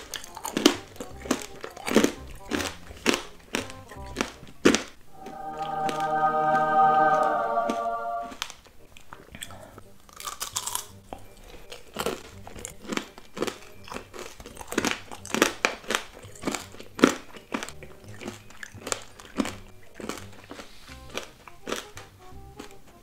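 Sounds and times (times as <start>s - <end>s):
crunching candy shell: 0.0s - 5.0s, 9.4s - 22.8s.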